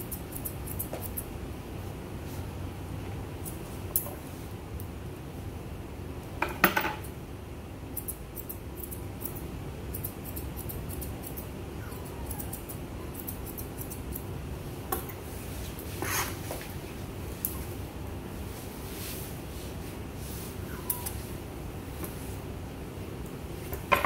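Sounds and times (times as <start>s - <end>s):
shears snipping dog fur: 0.0s - 1.3s, 8.0s - 14.4s, 18.4s - 22.4s.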